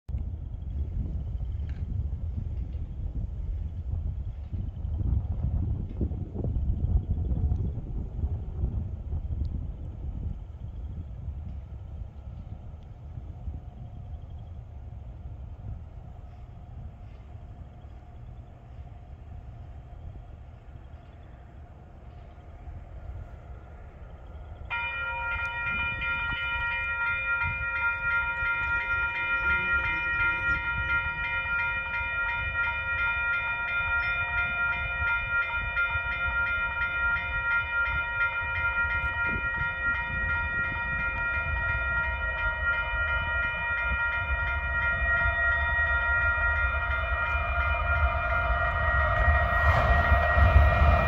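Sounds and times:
diesel freight train rumble: 0:00.2 - 0:51.0
railroad crossing bell ringing: 0:22.1 - 0:51.0.

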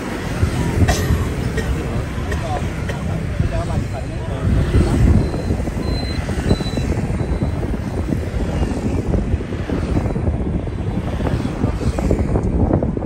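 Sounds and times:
vehicle rumble: 0:00.0 - 0:13.0.

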